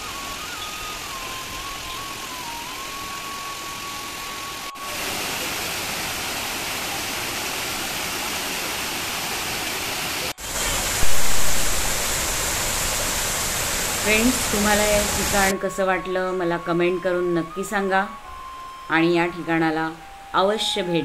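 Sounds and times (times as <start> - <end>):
waterfall cascading and splashing: 0.0 - 15.5.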